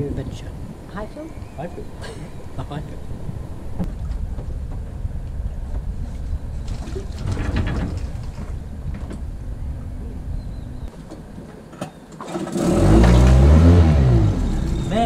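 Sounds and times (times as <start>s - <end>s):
wind buffeting microphone: 0.0s - 11.7s
rattles and knocks: 3.8s - 9.5s.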